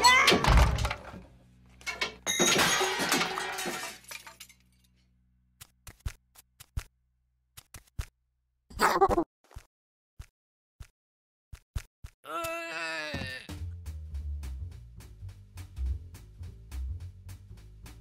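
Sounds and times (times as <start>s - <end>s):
glass shattering: 1.9s - 4.8s.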